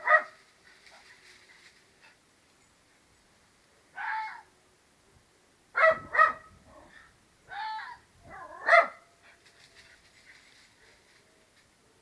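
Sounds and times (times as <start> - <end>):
dog barking: 0.0 - 0.4, 5.8 - 6.5, 8.3 - 9.1.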